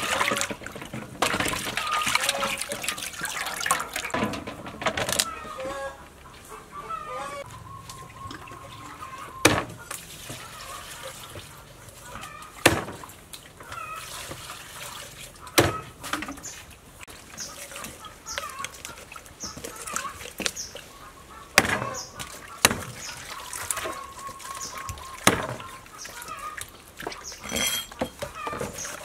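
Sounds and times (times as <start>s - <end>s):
cleaver chopping on wooden board: 12.6s - 13.0s, 21.6s - 21.8s, 22.6s - 23.0s, 25.2s - 25.6s.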